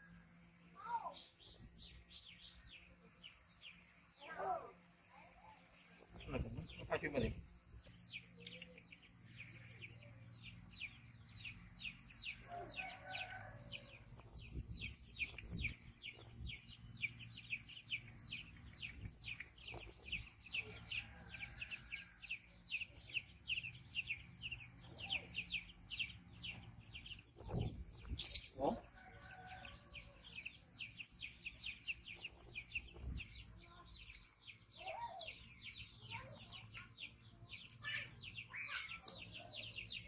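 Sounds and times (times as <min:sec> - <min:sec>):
bird chirping: 0:00.0 - 0:40.0.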